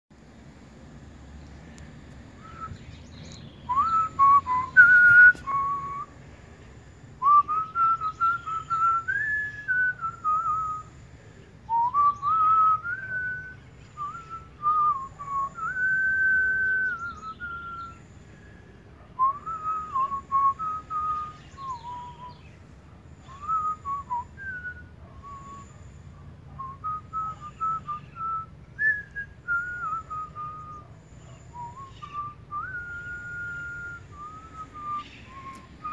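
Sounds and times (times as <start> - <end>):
person whistling a tune: 3.7 - 6.1, 7.2 - 10.9, 11.7 - 18.0, 19.2 - 22.4, 23.3 - 25.7, 26.6 - 30.8, 31.6 - 35.9.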